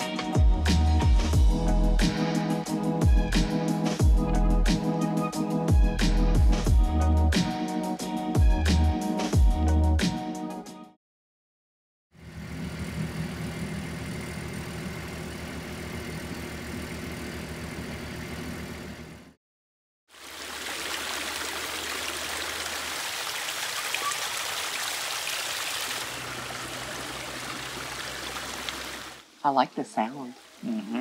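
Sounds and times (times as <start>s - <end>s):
engine running: 12.2s - 19.4s, 26.0s - 29.2s
waterfall splashing: 20.1s - 29.4s.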